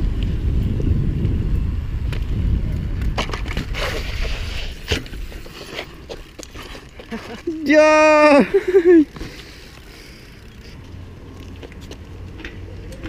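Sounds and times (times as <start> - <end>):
wind buffeting microphone: 0.0 - 5.5
bike tyres rolling on concrete: 0.0 - 13.0
bike clicks and knocks: 2.0 - 8.0, 8.8 - 13.0.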